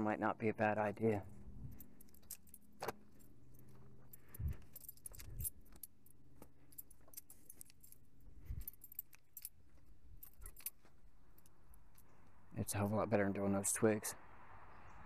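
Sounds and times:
faint low hum: 0.0s - 15.0s
clicks and light jingles: 1.0s - 13.0s.

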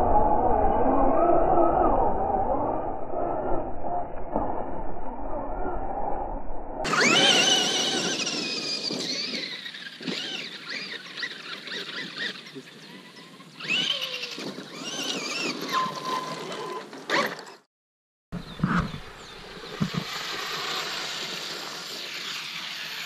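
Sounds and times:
electric motor whining: 6.9s - 17.5s.

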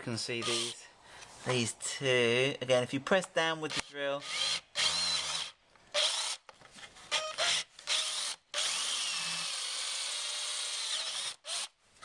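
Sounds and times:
cordless drill drilling: 0.4s - 0.8s, 3.7s - 6.4s, 7.1s - 11.8s.

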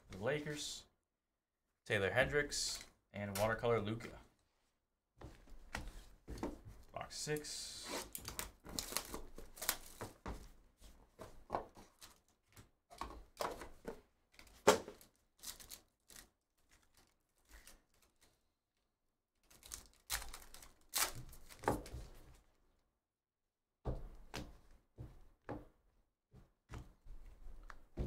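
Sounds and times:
foil wrapper crinkling and tearing: 15.1s - 18.4s, 19.4s - 21.7s.

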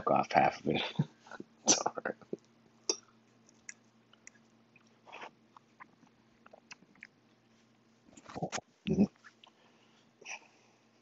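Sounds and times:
chewing with wet mouth clicks: 2.3s - 7.2s.

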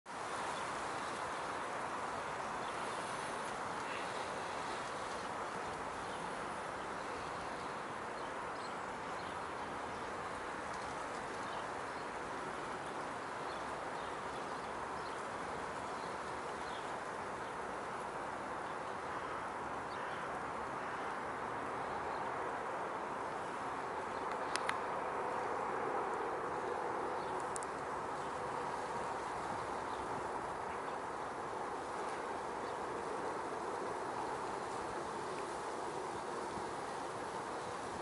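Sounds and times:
outdoor background hiss: 0.1s - 38.0s
faint bird calls: 2.7s - 5.2s.

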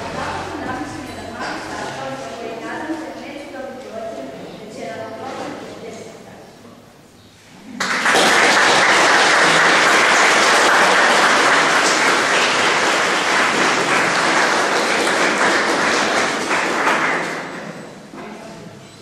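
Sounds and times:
audience applauding: 7.8s - 17.9s.

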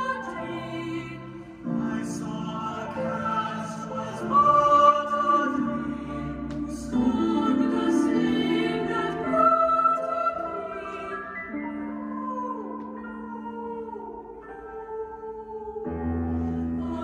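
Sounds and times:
choral singing voices: 0.0s - 17.0s.

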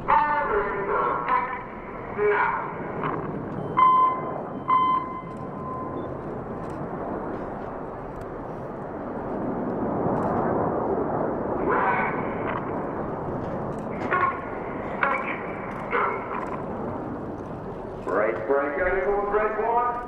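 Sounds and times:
jets flying past: 0.8s - 19.7s
short steady tones: 3.5s - 6.3s.

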